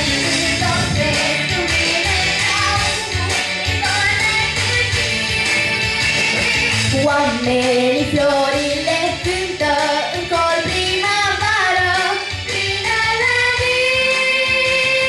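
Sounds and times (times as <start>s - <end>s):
girls singing pop song: 0.0s - 15.0s
instrumental backing: 0.0s - 15.0s.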